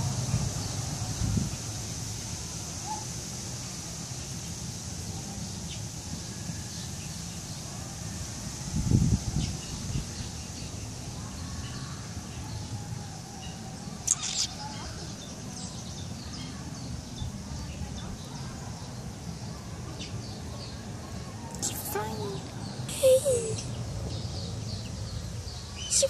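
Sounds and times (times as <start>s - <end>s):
steady outdoor hiss: 0.0s - 26.0s
faint bird chirps: 9.4s - 26.0s.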